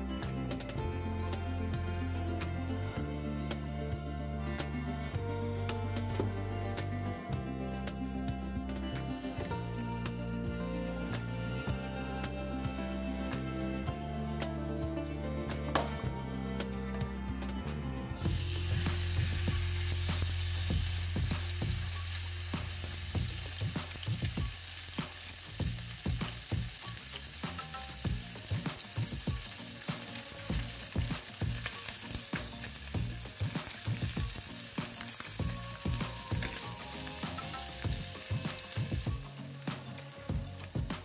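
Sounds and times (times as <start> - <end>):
fish sizzling in frying pan: 18.2 - 41.0.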